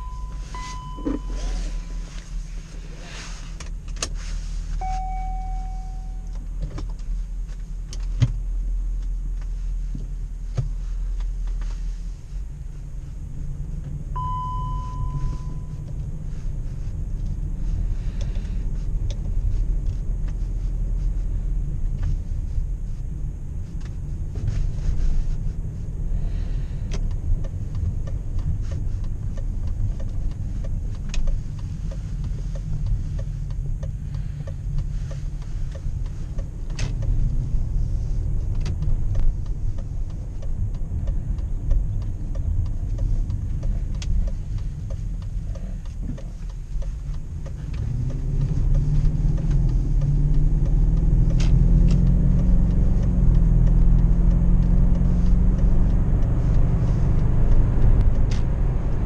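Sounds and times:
short beep: 0.0s - 2.2s, 4.8s - 6.4s, 14.2s - 15.8s
car engine and road noise: 0.0s - 59.0s.

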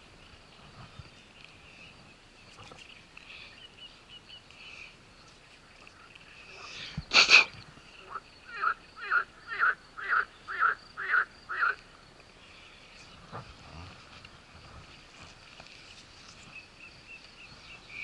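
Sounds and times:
frog croaking: 7.4s - 11.9s.

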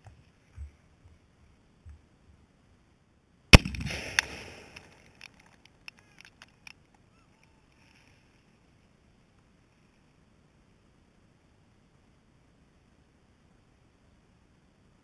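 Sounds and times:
explosive target blast: 3.6s - 4.9s
crack: 3.6s - 7.0s
small ticks: 4.1s - 8.6s.

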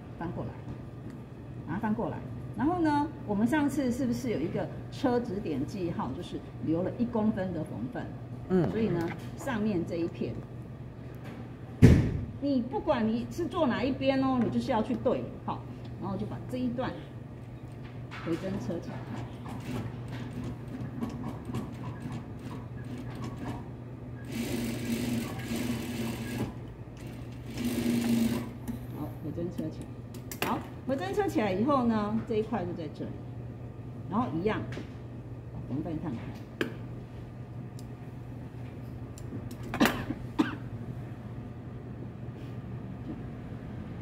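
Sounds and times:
steady low hum: 0.0s - 44.0s
sewing machine stitching: 24.2s - 28.5s
sewing machine motor humming: 24.2s - 28.6s
person coughing: 39.7s - 40.7s.

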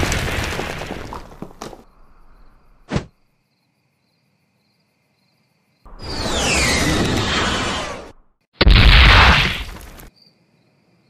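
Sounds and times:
short loud thump: 2.9s - 3.1s
cartoon explosion: 5.9s - 10.0s.

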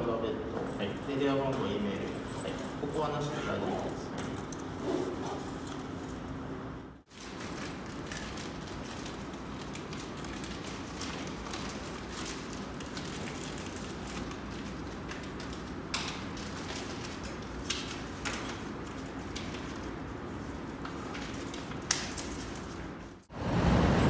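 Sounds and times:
packaging clicks and rustles: 7.1s - 22.2s.

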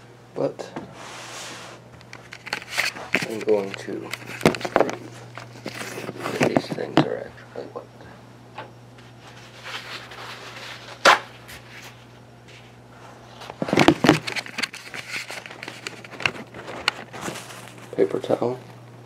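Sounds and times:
low steady hum: 0.0s - 19.0s
rustling and crinkling handling: 1.2s - 7.3s, 9.0s - 18.9s.

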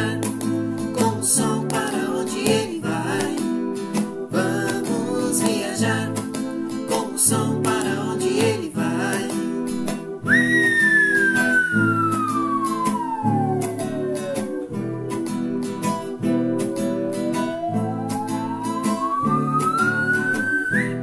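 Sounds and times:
acoustic guitar strumming: 0.0s - 21.0s
man singing: 1.0s - 3.4s, 4.3s - 9.7s
high whistle-like tone sliding down: 10.3s - 21.0s.

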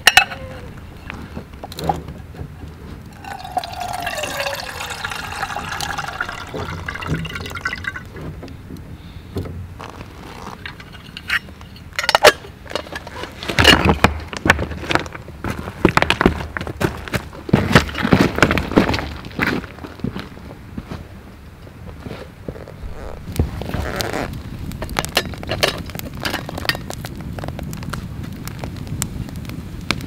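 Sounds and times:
water running into metal kettle: 3.2s - 8.2s.

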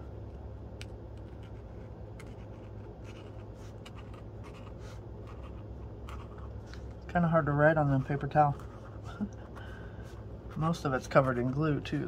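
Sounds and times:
steady low hum: 0.0s - 12.0s
marker scratching on paper: 1.2s - 6.5s.

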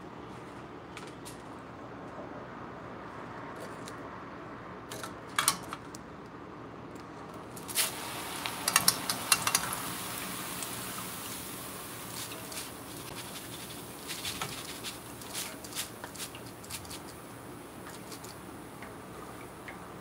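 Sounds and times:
rice flakes pattering on mesh: 7.6s - 18.4s
steady hiss: 7.6s - 18.8s
metal strainer clicks: 8.6s - 9.7s.

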